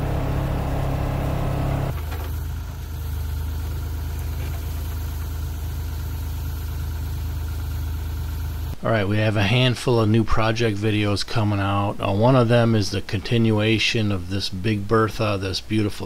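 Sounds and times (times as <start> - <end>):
engine with higher hum: 0.0 - 8.8
excavator diesel engine running: 0.0 - 8.8.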